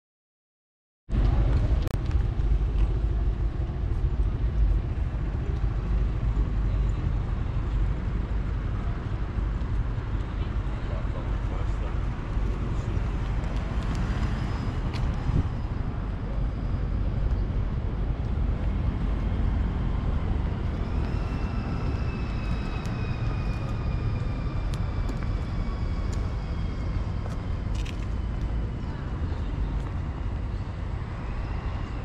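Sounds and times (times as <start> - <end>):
city street traffic rumbling: 1.1 - 32.0.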